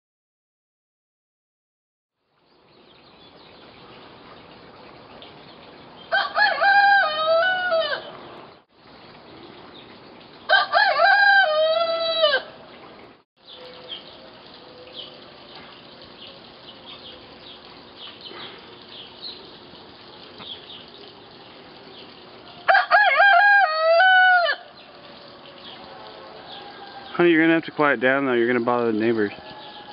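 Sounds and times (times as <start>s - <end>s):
hen crowing: 6.1s - 8.2s, 10.5s - 12.6s, 22.6s - 27.4s, 29.3s - 29.9s.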